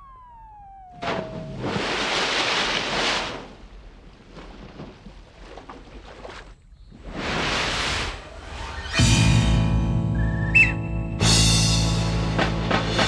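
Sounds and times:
falling whistle: 0.0 - 1.8, 10.2 - 10.9
dolphin splashing into water: 1.0 - 6.1.

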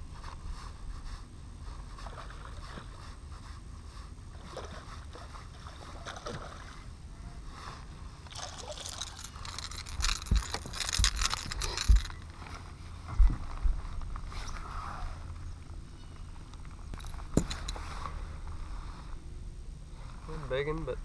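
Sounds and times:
water lapping at boat hull: 1.9 - 3.1, 4.3 - 6.9.

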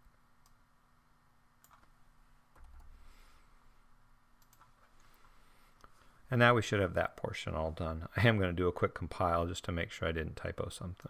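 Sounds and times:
faint keyboard clicks: 1.6 - 3.0, 4.4 - 5.2.

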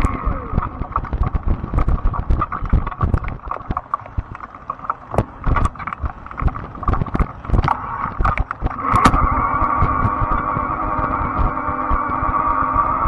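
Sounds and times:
low rumble: 0.0 - 4.5, 5.1 - 13.0
bike knocking and rattling: 0.0 - 12.1
electric motor whine: 8.7 - 13.0.

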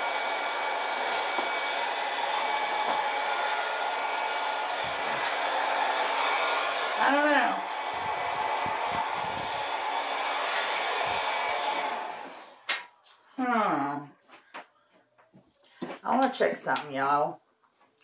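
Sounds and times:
hair dryer running: 0.0 - 13.2.

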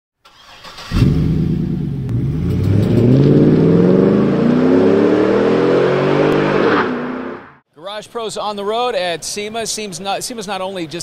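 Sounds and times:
car engine accelerating hard: 0.7 - 7.6.

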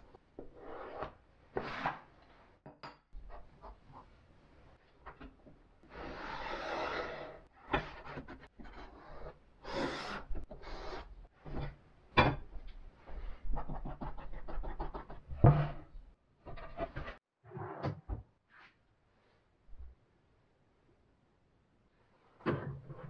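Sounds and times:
pencil scraping on board: 0.4 - 2.0, 5.9 - 11.2.

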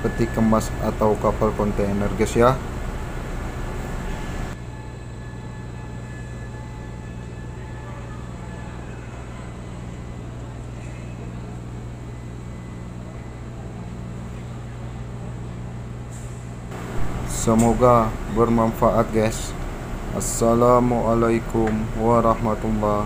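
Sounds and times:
low machinery hum: 0.0 - 23.0
high-pitched whines: 16.7 - 23.0.

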